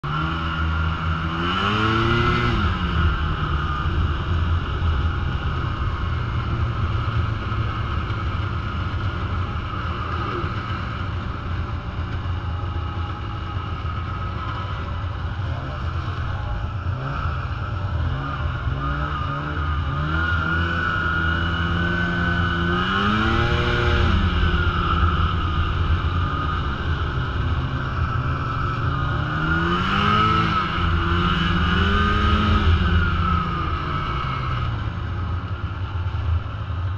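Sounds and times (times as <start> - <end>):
snowmobile engine revving: 0.0 - 6.4, 13.6 - 34.7.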